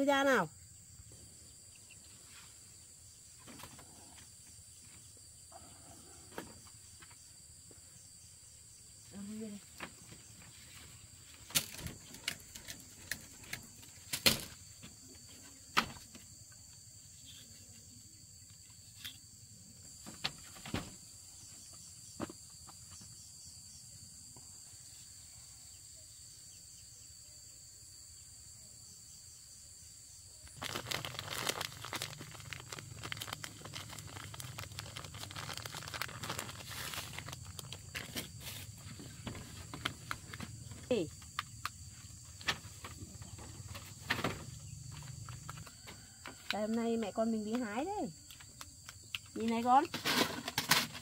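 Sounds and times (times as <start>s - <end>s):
insects buzzing: 0.0s - 51.0s
rustling and crunching undergrowth: 9.7s - 14.9s, 30.5s - 40.9s.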